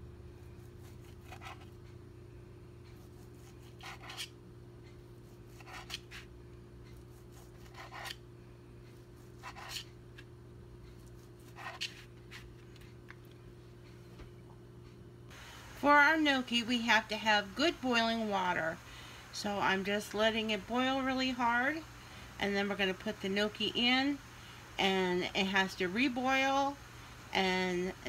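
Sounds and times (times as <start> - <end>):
steady low hum: 0.0 - 28.0
knife slicing sausage: 0.5 - 1.8, 2.8 - 4.4, 5.2 - 6.3, 6.9 - 8.2, 9.0 - 10.2, 11.0 - 12.6.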